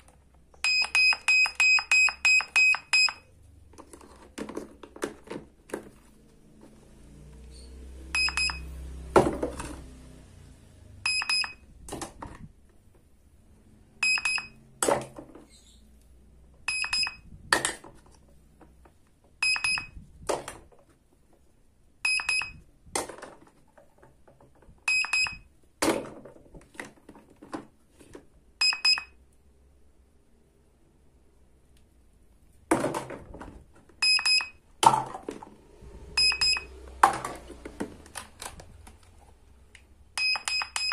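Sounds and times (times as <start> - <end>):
toy scanner beeps: 0.6 - 3.3, 8.1 - 8.7, 11.0 - 11.7, 14.0 - 14.7, 16.7 - 17.3, 19.4 - 20.0, 22.0 - 22.6, 24.9 - 25.5, 28.6 - 29.2, 34.0 - 34.6, 36.2 - 36.8, 40.2 - 40.9.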